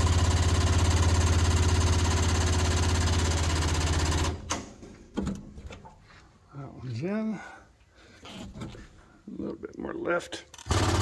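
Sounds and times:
machine humming and rattling: 0.0 - 4.7, 10.6 - 11.0.

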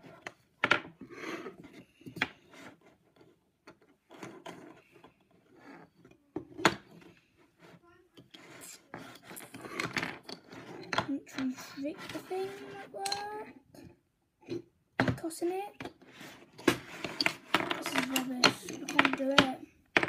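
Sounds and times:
string rubbing and scraping: 10.4 - 13.4.

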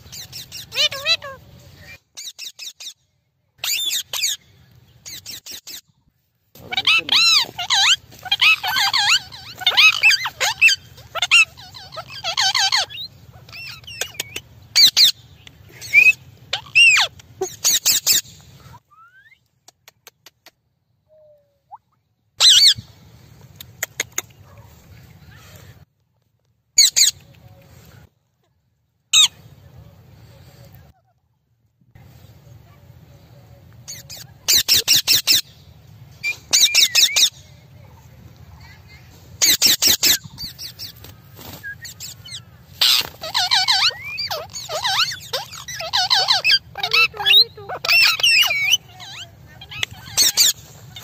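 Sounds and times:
parakeets squeaky chatter: 0.0 - 3.0, 3.6 - 4.4, 5.0 - 5.8, 6.6 - 15.2, 15.9 - 18.3, 22.4 - 22.8, 26.8 - 27.2, 29.2 - 29.4, 33.9 - 35.5, 36.2 - 37.4, 38.6 - 51.0
parakeets screeching: 3.6 - 4.4, 6.6 - 15.2, 15.9 - 18.2, 33.9 - 35.5, 36.3 - 37.4, 39.4 - 51.0.

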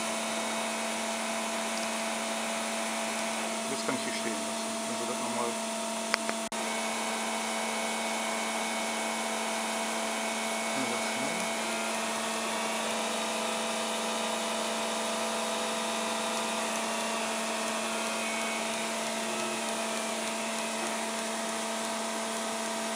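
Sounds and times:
machine spindle motor whirring: 0.0 - 22.9
steady whining tones: 0.0 - 22.9.

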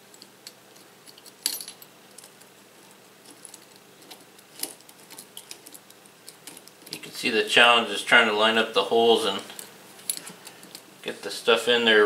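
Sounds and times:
metal clicks of key and screws: 0.0 - 2.5, 3.2 - 7.1.

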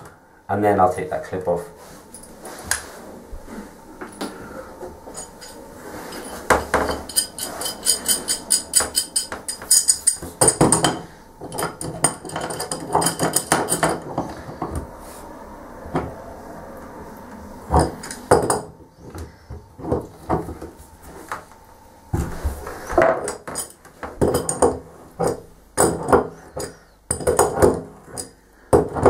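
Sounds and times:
spanner clinking on metal: 5.1 - 14.3, 23.2 - 29.0.

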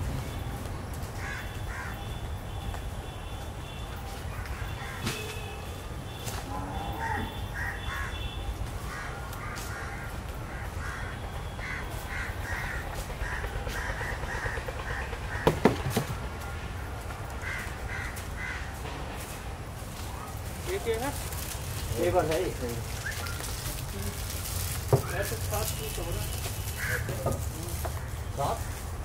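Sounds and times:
crows cawing: 1.2 - 2.1, 4.2 - 5.1, 6.4 - 18.8, 22.0 - 28.9.

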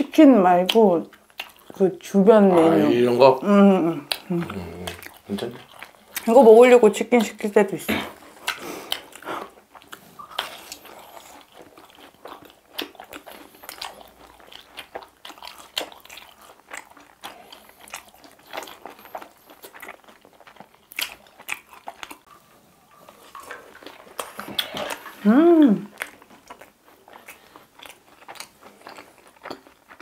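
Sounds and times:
crunching and chewing fried chicken: 0.0 - 30.0.

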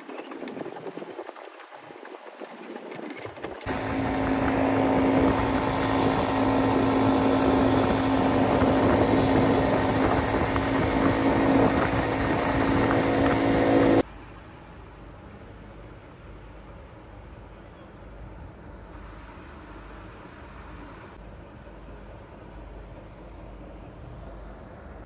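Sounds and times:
small vehicle engine running: 2.4 - 14.1.

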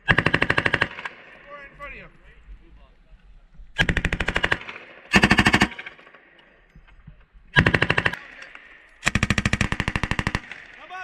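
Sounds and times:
machine gun firing bursts: 0.0 - 1.2, 3.8 - 6.0, 7.6 - 8.2, 9.0 - 10.8.

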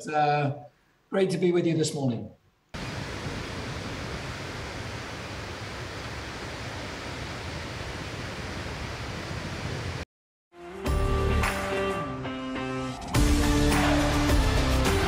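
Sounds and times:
fountain water rushing: 2.8 - 10.0.

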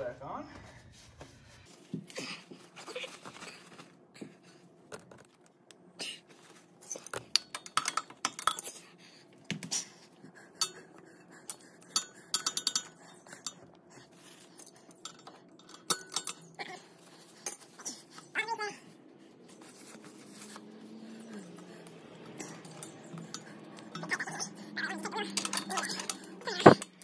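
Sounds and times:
pliers clicking on metal hose clamp: 24.9 - 27.0.

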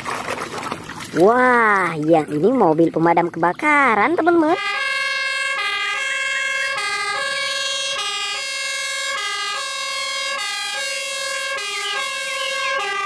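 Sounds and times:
fire truck two-tone siren: 4.3 - 13.0.

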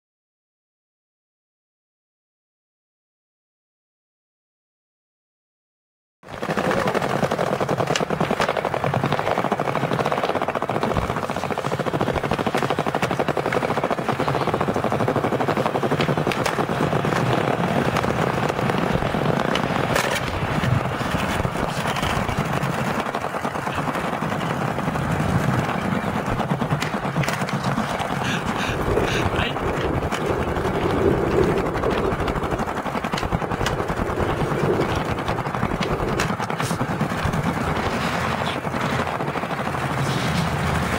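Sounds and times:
skateboard wheels rolling on tiles: 6.3 - 38.7
skateboard landing crack: 17.8 - 22.2.

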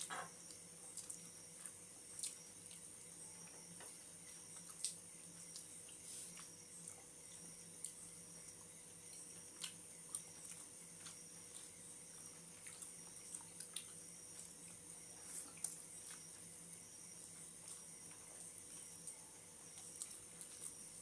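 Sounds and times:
faint hum: 0.0 - 21.0
wet chewing and mouth smacks: 0.4 - 2.9, 4.3 - 16.5.

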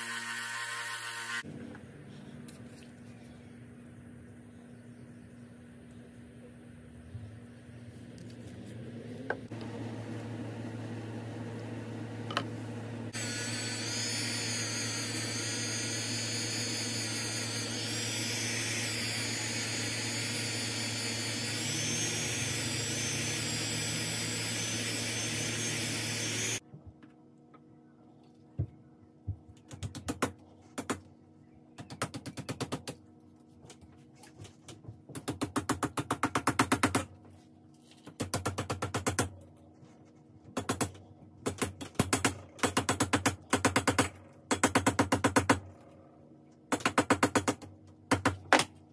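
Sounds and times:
rotary tool whining: 0.0 - 1.4, 13.1 - 26.6.

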